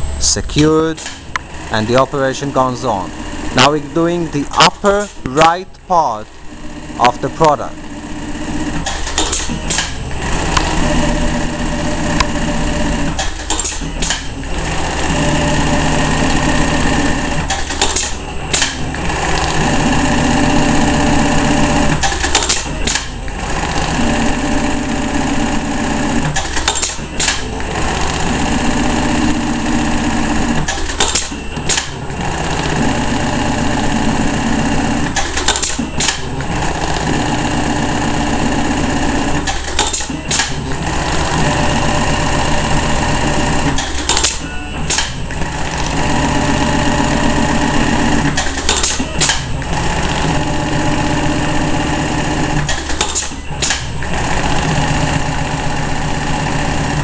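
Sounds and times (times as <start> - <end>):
low motor hum: 0.0 - 35.2
sewing machine stitching: 0.6 - 57.0
sewing machine clicks: 17.4 - 20.0, 21.8 - 24.0, 26.2 - 28.4, 35.0 - 37.4, 39.4 - 41.4.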